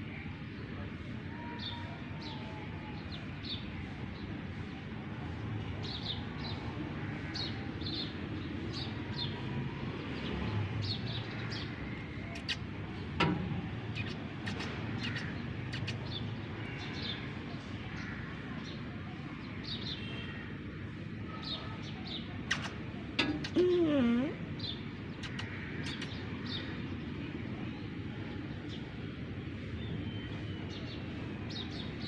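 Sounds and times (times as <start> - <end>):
small birds chirping: 10.0 - 20.4, 21.0 - 32.0.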